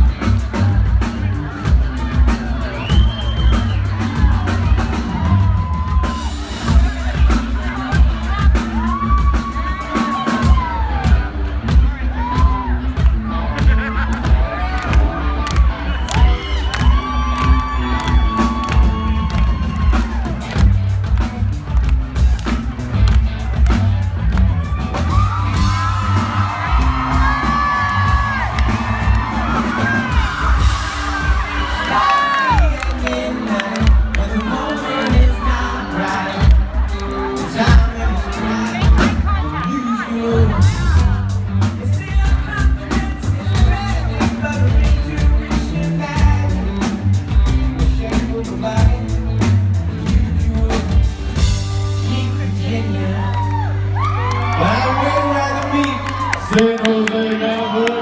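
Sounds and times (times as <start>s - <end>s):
drums steady beat: 0.0s - 53.6s
loud rock band playing live: 0.0s - 58.0s
audience whooping: 2.3s - 6.8s, 8.3s - 11.3s, 13.6s - 20.9s, 22.4s - 41.2s, 53.0s - 58.0s
male lead vocal: 29.2s - 58.0s.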